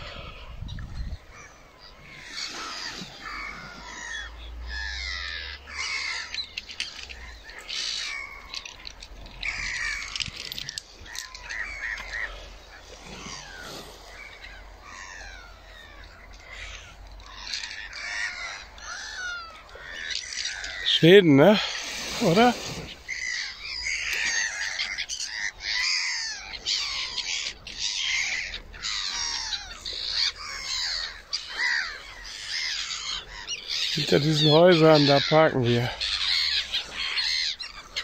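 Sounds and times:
wind rumbling on microphone: 0.0 - 2.1
seabirds calling: 0.0 - 38.0.

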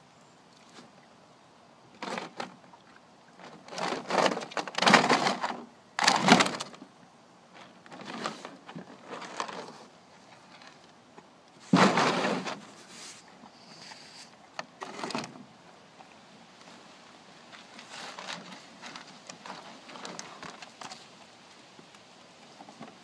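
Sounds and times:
ice scraping over plastic: 3.4 - 6.7, 7.9 - 9.9, 11.6 - 15.3, 17.8 - 20.8.

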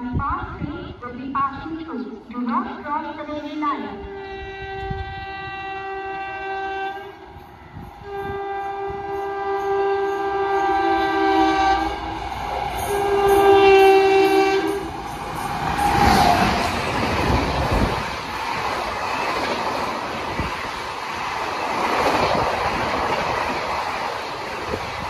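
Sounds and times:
locomotive air horn blasts: 4.0 - 7.4, 8.0 - 15.1.

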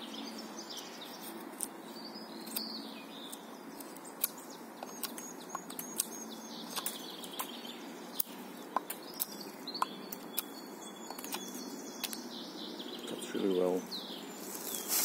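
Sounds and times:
small birds chirping: 0.0 - 15.0
knife carving wood: 1.2 - 1.8, 2.4 - 7.5, 11.1 - 12.2.

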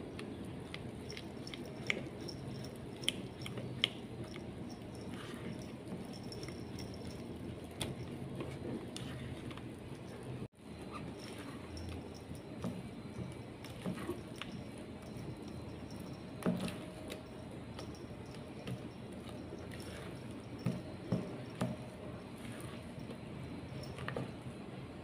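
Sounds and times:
spatula stirring wet batter: 0.1 - 10.0, 10.8 - 24.5.

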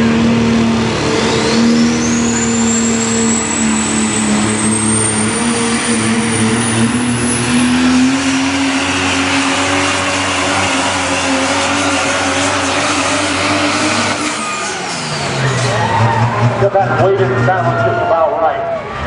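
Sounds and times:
diesel truck engine at full throttle: 0.0 - 19.0
turbocharger whistle: 0.5 - 19.0.

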